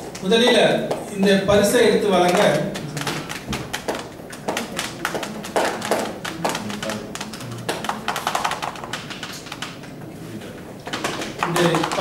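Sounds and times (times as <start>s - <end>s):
sharp taps and knocks: 2.2s - 10.0s, 10.8s - 12.0s.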